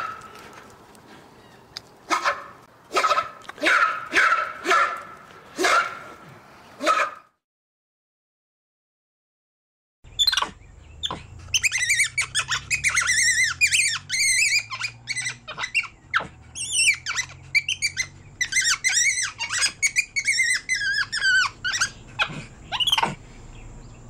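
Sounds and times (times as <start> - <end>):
monkey squeaky calls: 10.1 - 23.2.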